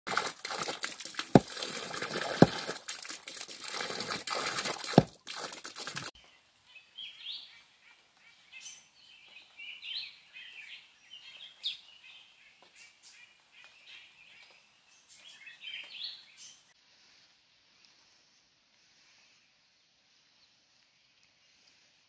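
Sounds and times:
knife chopping leafy plants: 1.2 - 2.8.

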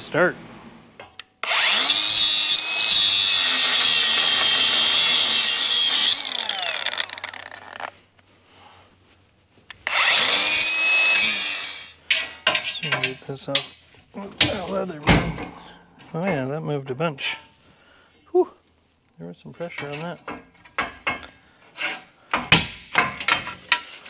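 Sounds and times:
angle grinder cutting steel: 1.4 - 7.9, 9.8 - 12.0.

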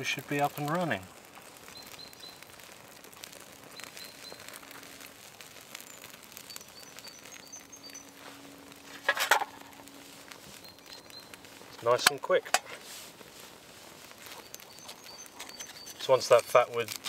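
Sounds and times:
campfire crackling and popping: 0.0 - 17.0
bird chirping: 1.6 - 2.5, 3.7 - 4.6, 5.8 - 8.4, 10.5 - 12.1, 14.3 - 16.5.

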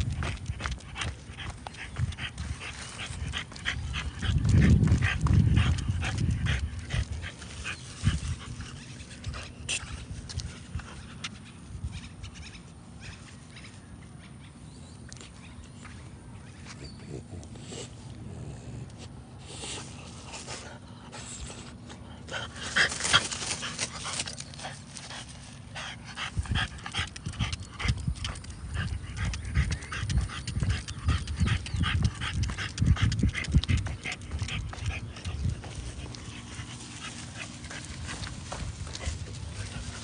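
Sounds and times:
dog panting: 0.0 - 11.7, 16.5 - 40.0
dog sniffing: 16.9 - 40.0.

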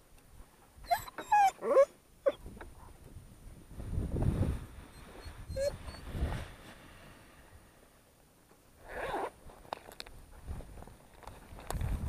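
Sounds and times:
zipper rasp: 8.8 - 9.4.

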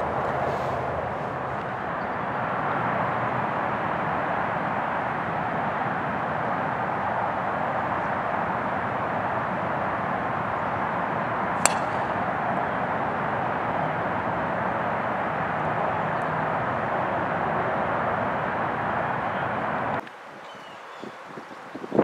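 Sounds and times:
steady rushing background noise: 0.0 - 22.0
golf club striking ball: 11.6 - 14.1.

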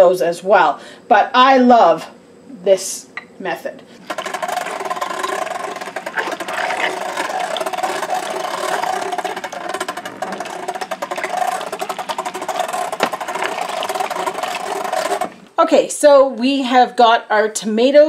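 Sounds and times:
food mill grinding rattle: 4.0 - 15.6.

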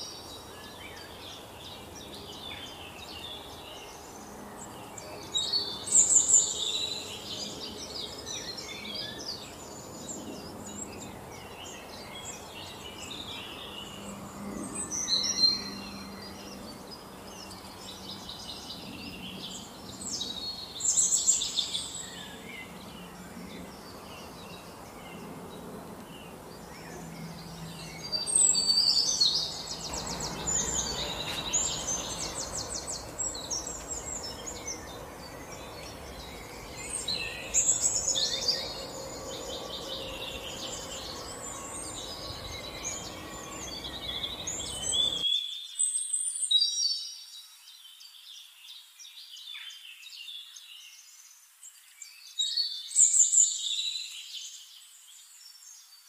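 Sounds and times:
songbirds chirping and trilling: 0.0 - 56.0
steady background hiss: 25.8 - 45.2.

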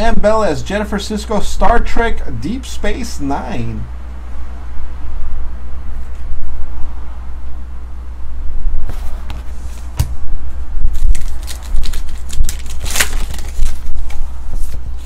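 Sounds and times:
steady low hum: 0.0 - 15.0
wrapper crinkling and tearing: 10.9 - 14.2
cards rustling: 10.9 - 14.8.

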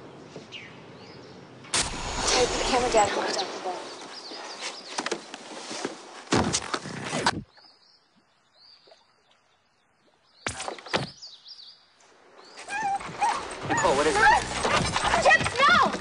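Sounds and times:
sharp crackling bursts: 1.7 - 3.8.

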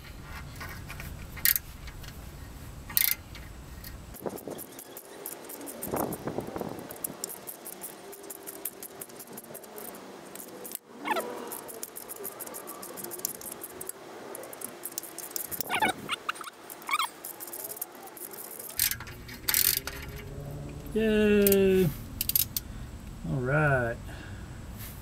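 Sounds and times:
short high squeaks: 4.2 - 20.5
metal hand tools clinking: 6.9 - 20.4, 22.2 - 22.6.

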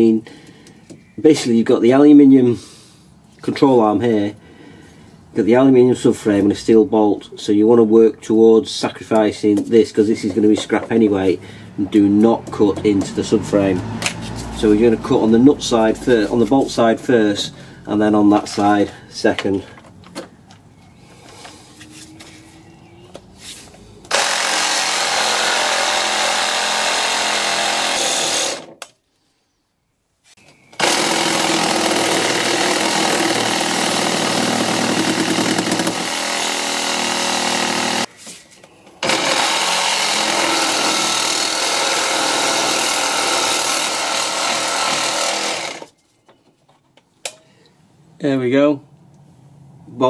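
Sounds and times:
power saw cutting steel bolt: 39.0 - 45.9.

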